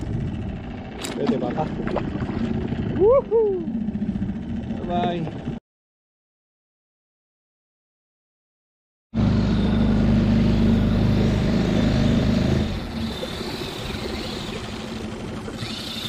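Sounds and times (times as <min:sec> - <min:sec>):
outboard motor droning: 0:00.0 - 0:05.6, 0:09.2 - 0:16.0.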